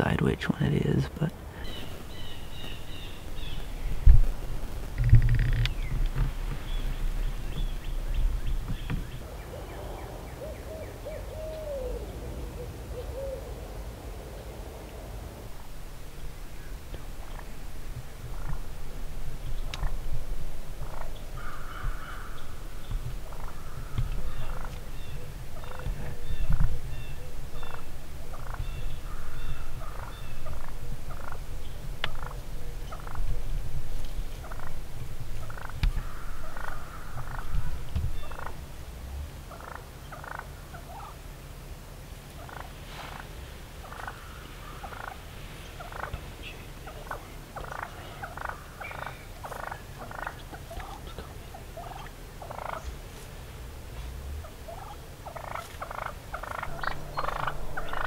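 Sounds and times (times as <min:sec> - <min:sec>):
turkeys clucking: 0:00.8 - 0:13.5, 0:14.4 - 0:38.7, 0:39.5 - 0:41.2, 0:42.2 - 0:53.3, 0:54.0 - 0:58.0
low rumble: 0:01.3 - 0:39.6, 0:53.4 - 0:58.0.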